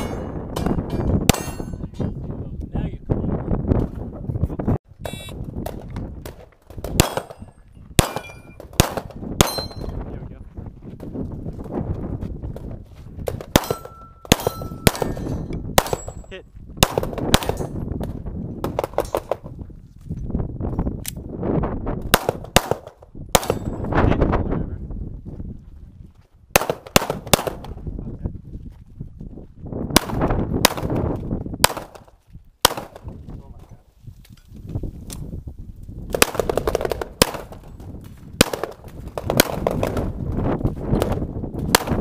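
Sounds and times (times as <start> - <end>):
steel plates ringing when hit: 0.9 - 1.9
pistol shots: 5.7 - 9.8, 13.3 - 17.7, 22.1 - 23.8, 26.6 - 27.8, 30.0 - 31.0, 31.6 - 33.1, 36.1 - 37.7, 38.4 - 40.1, 41.0 - 42.0.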